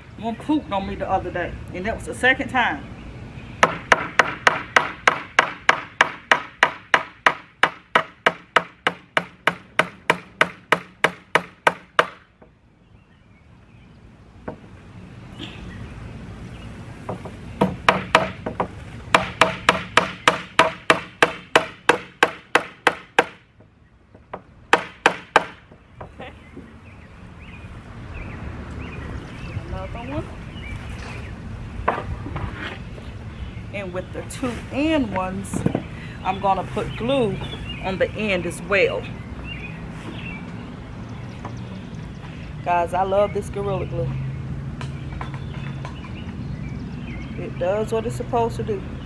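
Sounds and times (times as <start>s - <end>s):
hammer driving nails into wood: 17.2s - 23.4s.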